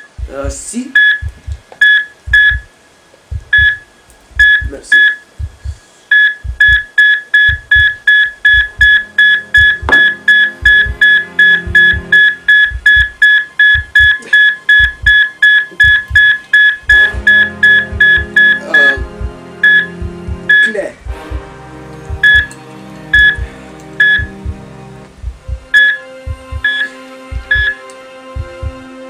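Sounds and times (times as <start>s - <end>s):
heart monitor beeps: 1.0s - 2.7s, 3.3s - 21.4s, 22.1s - 24.6s, 25.2s - 27.8s
guitar music: 21.4s - 25.2s.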